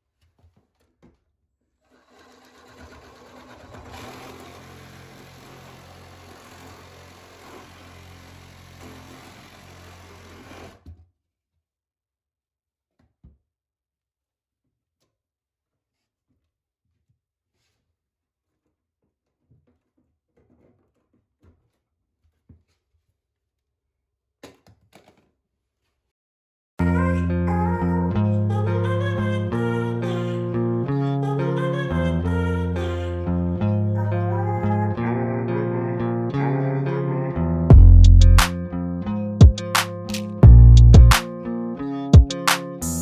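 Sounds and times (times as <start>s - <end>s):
power tool cutting pipe: 1.8s - 10.9s
handling knocks and rustles: 18.5s - 23.2s.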